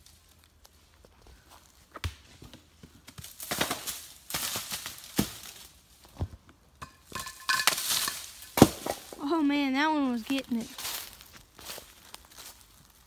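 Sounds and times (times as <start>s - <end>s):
footsteps crunching dry leaves: 3.1s - 6.1s, 7.4s - 13.0s.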